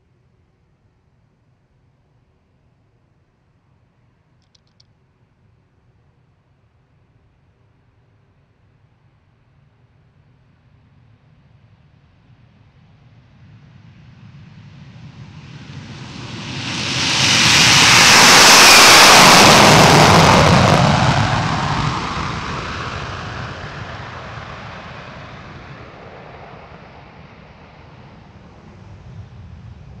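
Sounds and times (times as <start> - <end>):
jet engines roaring: 15.2 - 30.0.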